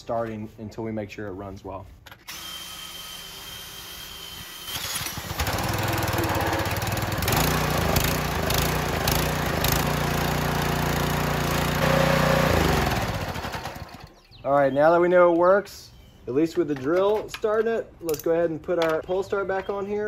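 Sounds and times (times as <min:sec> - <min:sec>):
drill whining: 0:02.2 - 0:14.1
small engine running: 0:02.3 - 0:14.1.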